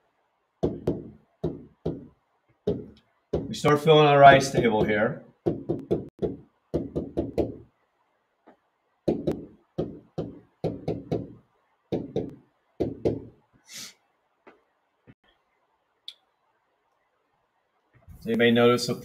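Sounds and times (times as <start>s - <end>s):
marker tapping on board: 0.6s - 3.6s, 4.3s - 7.6s, 8.5s - 13.3s.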